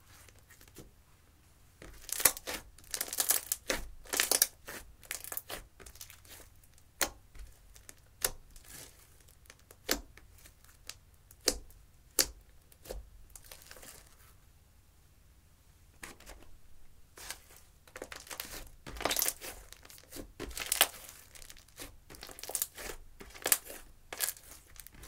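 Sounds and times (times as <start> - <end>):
hands squeezing slime: 1.9 - 6.5, 18.0 - 25.0.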